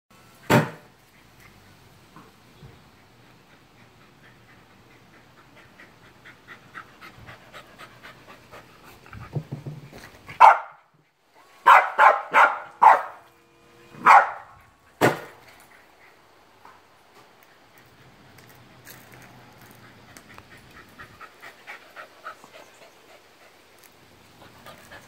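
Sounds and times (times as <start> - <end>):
dog panting: 2.8 - 9.4, 19.4 - 25.0
dog barking: 10.4 - 10.8, 11.6 - 13.2, 14.0 - 14.6.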